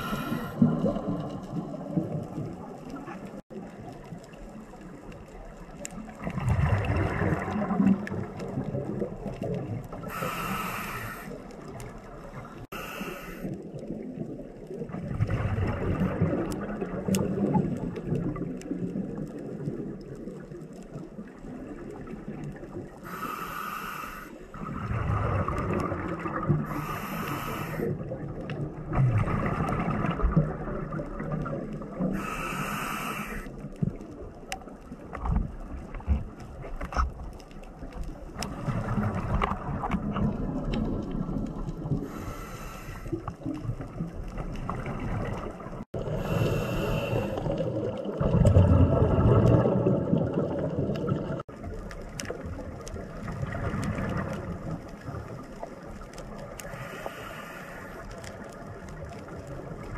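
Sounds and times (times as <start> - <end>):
regulator inhale hiss: 0.0 - 0.6, 10.0 - 11.5, 12.4 - 13.6, 23.0 - 24.6, 26.7 - 28.0, 32.2 - 33.6, 42.0 - 43.3, 46.1 - 47.6, 56.6 - 58.1
gurgling exhaled bubbles: 0.0 - 23.1, 24.5 - 59.9.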